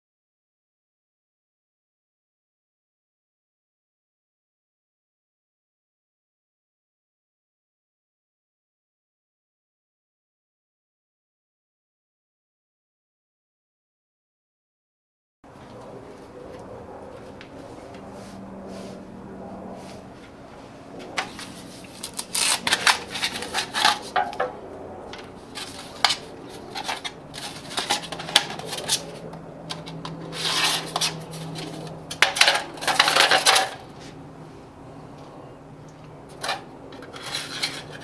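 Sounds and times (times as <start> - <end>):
low hum: 15.5 - 38.0
thin metal sheet crinkling: 21.2 - 24.4, 25.5 - 33.9, 36.3 - 38.0.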